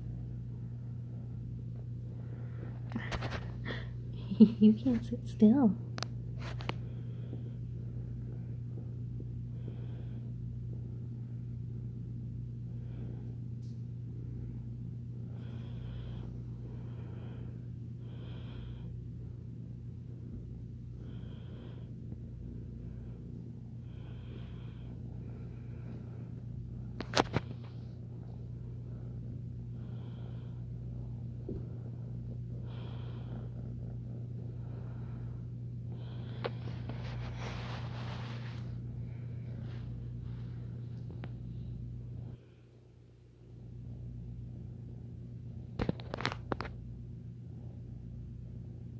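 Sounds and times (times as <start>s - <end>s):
kitten purring: 0.0s - 42.3s
soft snuffly breaths: 12.6s - 42.9s.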